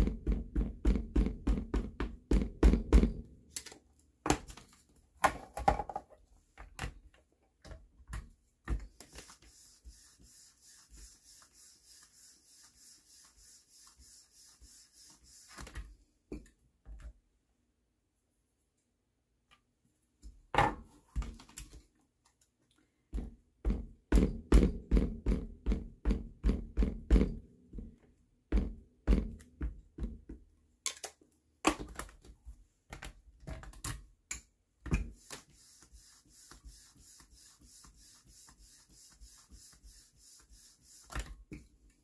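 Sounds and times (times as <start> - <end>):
faint rubbing hiss: 8.3 - 16.2, 35.0 - 41.5.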